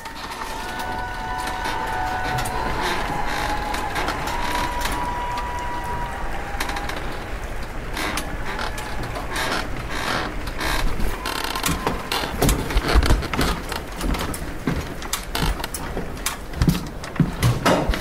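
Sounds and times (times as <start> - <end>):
high-pitched squeal: 0.0 - 7.4
machinery running: 0.0 - 9.9
irregular clicks and clacks: 6.4 - 18.0.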